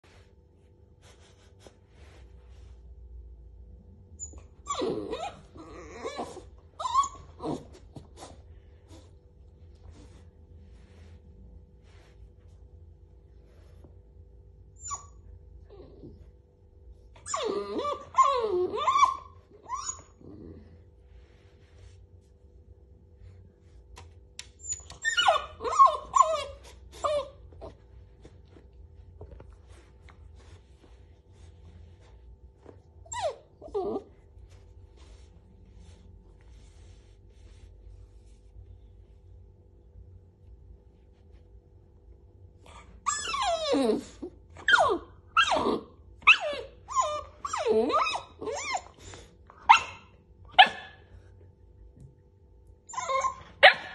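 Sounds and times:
puppy whining: 4.2 - 9.1, 14.7 - 16.5, 17.1 - 21.0, 24.4 - 28.4, 32.6 - 35.2, 42.6 - 51.1, 52.8 - 53.9.

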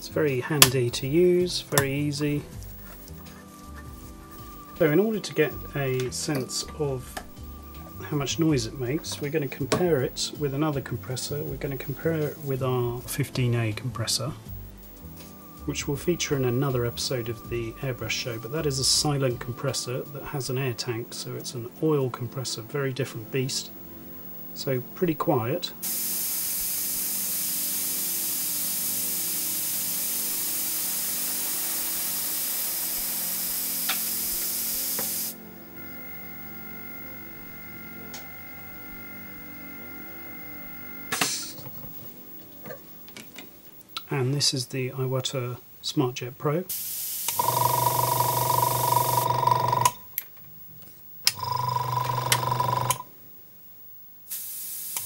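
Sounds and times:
airbrush spraying hiss: 2.3 - 6.4, 25.8 - 42.3, 46.7 - 47.5, 54.3 - 55.0
compressor humming: 25.3 - 43.5, 46.7 - 50.3.

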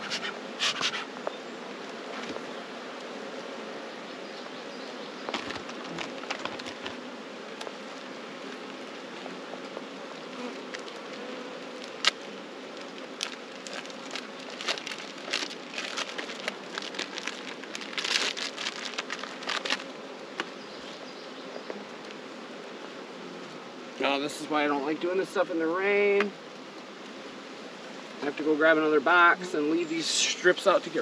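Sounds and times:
bees buzzing: 0.0 - 31.0
sharp clicks and crackles: 13.1 - 20.5.

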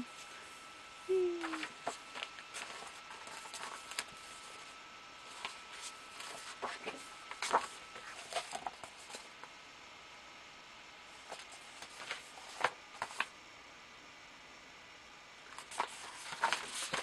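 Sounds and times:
book pages turning: 1.4 - 9.5, 11.2 - 13.3, 15.5 - 17.0
soft paper rustles and taps: 5.3 - 9.5, 11.2 - 13.3, 15.5 - 17.0.

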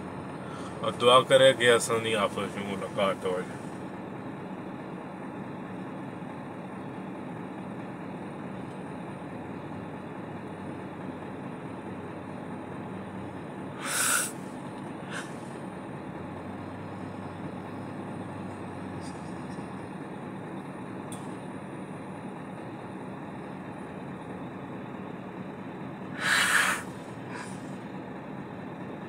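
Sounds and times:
low background hum: 0.0 - 29.0
loud sobbing breath: 13.8 - 14.4, 15.1 - 15.4, 26.2 - 27.6.

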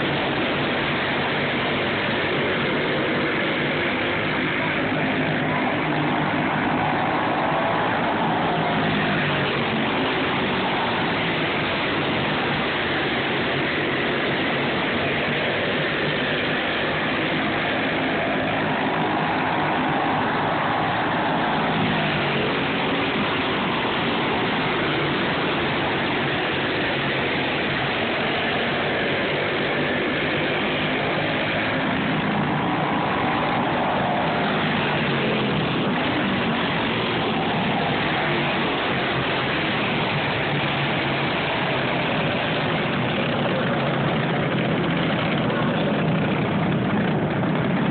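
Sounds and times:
go-kart engines revving: 0.0 - 47.9.

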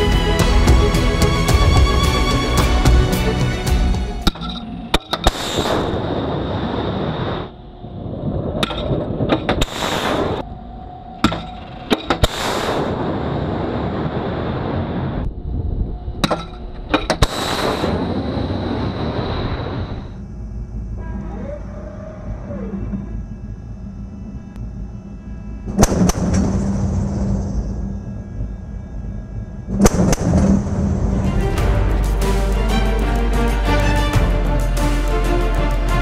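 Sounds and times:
sharp cracks: 29.7 - 30.6.

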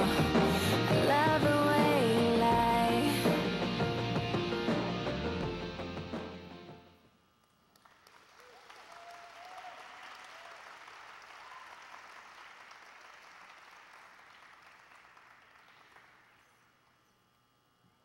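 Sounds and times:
audience applauding: 7.7 - 16.6.

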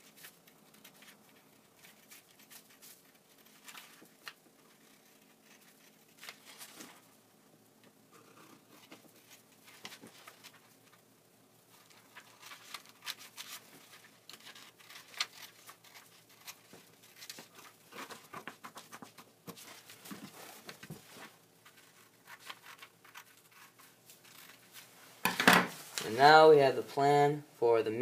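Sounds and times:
paper rustling: 0.0 - 7.1, 8.6 - 11.0, 11.7 - 25.0
scissors snipping paper: 12.1 - 19.2.

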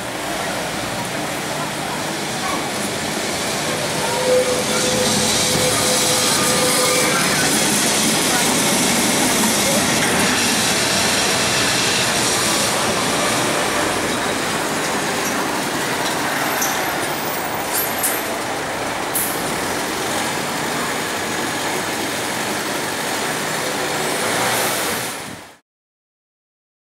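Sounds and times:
cars passing: 0.0 - 25.4
electric tram rolling on rails: 0.0 - 25.6
refuse truck running: 0.0 - 25.6.

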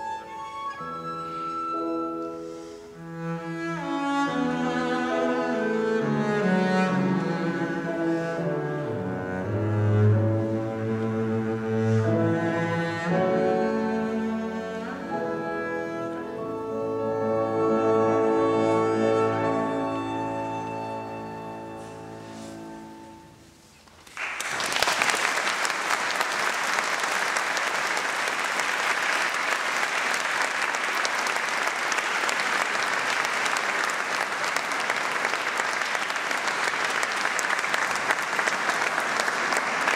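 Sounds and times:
audience applause: 24.0 - 39.9.

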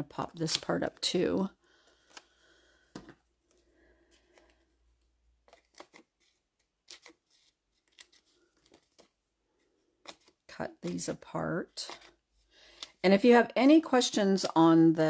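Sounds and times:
paper handling: 4.2 - 9.2, 9.9 - 12.9.

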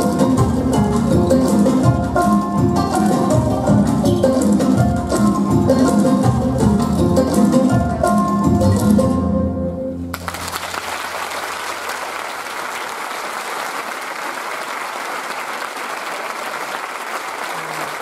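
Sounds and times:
audience applause: 10.1 - 18.0.

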